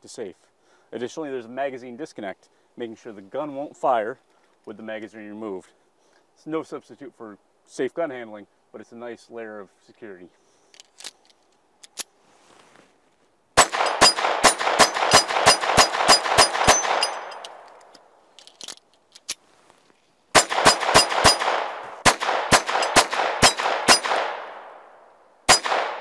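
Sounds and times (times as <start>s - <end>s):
pistol shots echoing: 13.6s - 17.6s, 20.4s - 24.9s, 25.5s - 26.0s.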